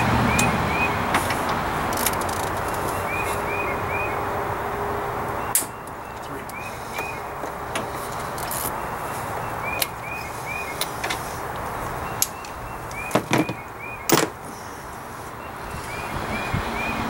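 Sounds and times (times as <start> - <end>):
hand tools clicking and knocking: 0.3 - 3.5, 5.5 - 8.8, 9.7 - 14.5.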